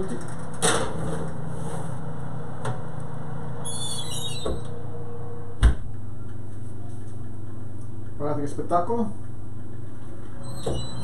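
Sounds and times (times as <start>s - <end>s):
oven door shutting: 0.0s - 1.9s, 3.6s - 4.9s, 10.4s - 11.0s
fan oven hum: 0.0s - 11.0s.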